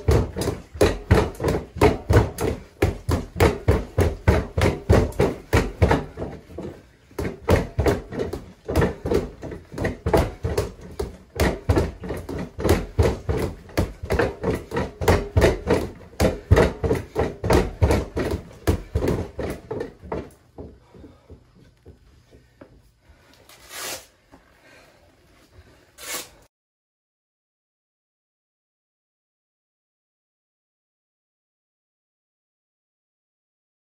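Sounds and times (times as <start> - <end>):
punches thudding on punching bag: 0.0 - 20.4.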